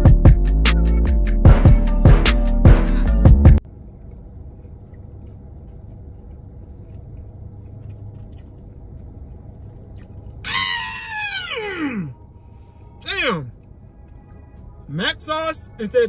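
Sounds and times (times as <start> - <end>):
faint chewing: 3.8 - 10.4, 12.4 - 14.9
man moaning with enjoyment: 10.5 - 12.2.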